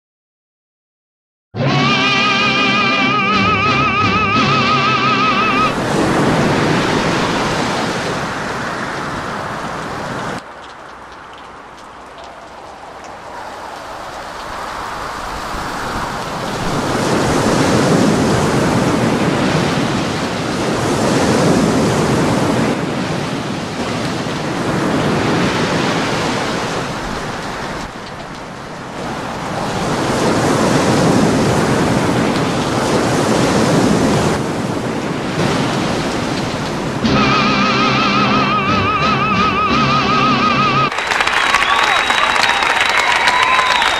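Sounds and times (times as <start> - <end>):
gusting wind buffeting microphone: 5.4 - 37.1.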